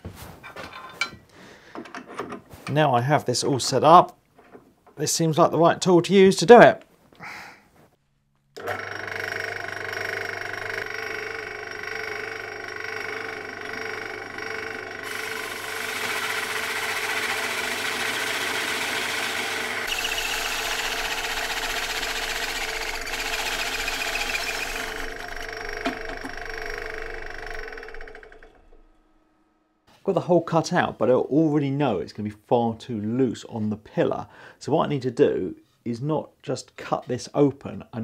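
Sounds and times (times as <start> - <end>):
hole saw cutting plywood: 8.6 - 28.9
drill motor humming: 8.6 - 29.0.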